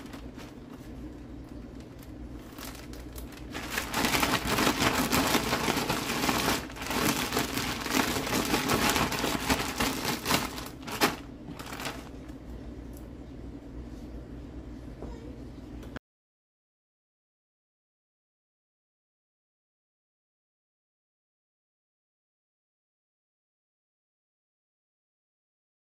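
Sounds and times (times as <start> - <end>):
plastic bag crinkling: 0.0 - 12.4.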